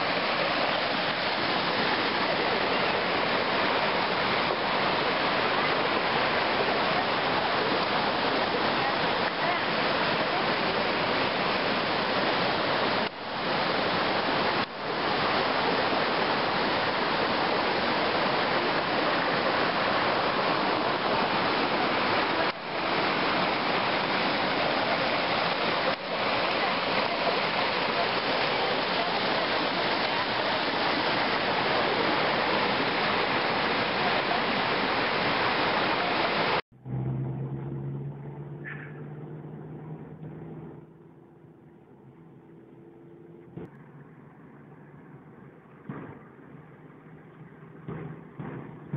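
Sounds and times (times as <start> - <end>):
water rushing over rocks: 0.0 - 36.6
car engine hum inside cabin: 36.7 - 45.8.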